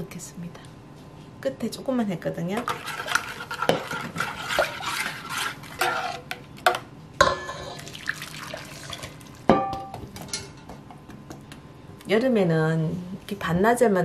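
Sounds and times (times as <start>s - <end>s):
metal spoon stirring liquid: 2.6s - 6.4s
liquid poured from pan: 7.6s - 9.5s.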